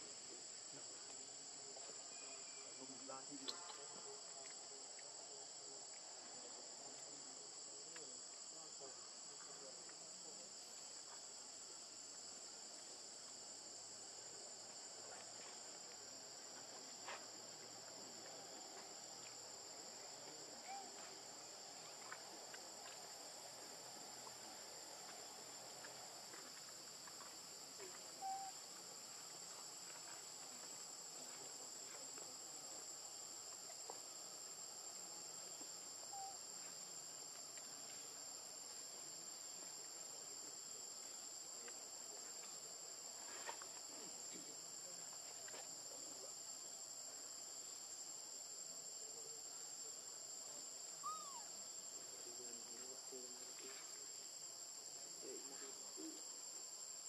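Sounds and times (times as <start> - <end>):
insects droning: 0.0 - 57.0
faint chirps: 1.8 - 4.6, 27.8 - 28.7, 36.0 - 36.5, 51.0 - 51.6.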